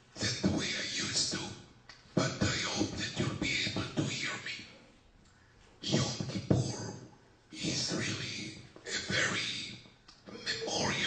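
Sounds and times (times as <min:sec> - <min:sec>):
person speaking: 0:00.1 - 0:04.8, 0:05.8 - 0:11.0.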